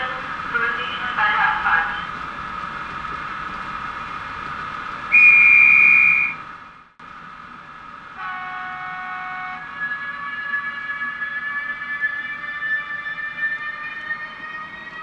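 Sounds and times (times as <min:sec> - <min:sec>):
steady multi-tone hum: 0:00.0 - 0:12.3
train whistle blast: 0:05.1 - 0:06.4, 0:08.2 - 0:10.6
multi-tone train horn chord: 0:08.2 - 0:11.6.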